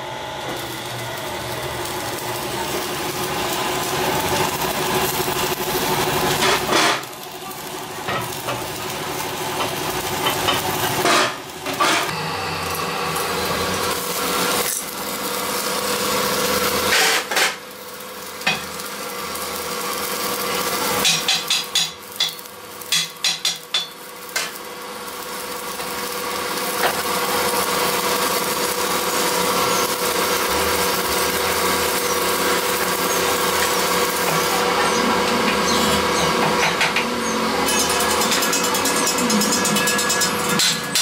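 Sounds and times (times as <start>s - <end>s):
lathe spinning rim: 8.9s - 22.3s
lathe motor humming: 12.1s - 17.1s.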